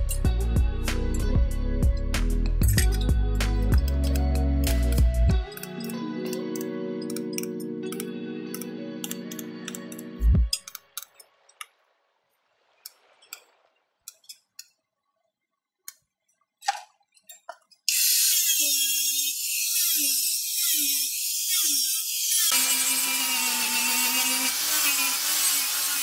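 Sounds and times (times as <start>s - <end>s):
handling clicks and taps: 3.8s - 11.7s
angle grinder whining: 17.9s - 26.0s.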